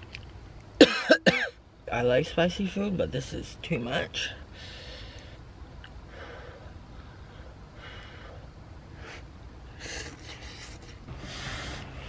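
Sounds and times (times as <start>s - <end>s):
low steady hum: 0.0s - 12.0s
man hissing breaths: 4.5s - 5.4s, 6.0s - 12.0s.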